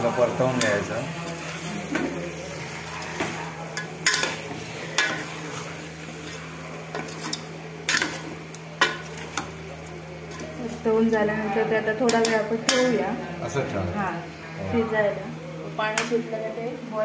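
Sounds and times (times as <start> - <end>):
chicken sizzling in oil: 0.0 - 10.6
steady low hum: 0.0 - 17.0.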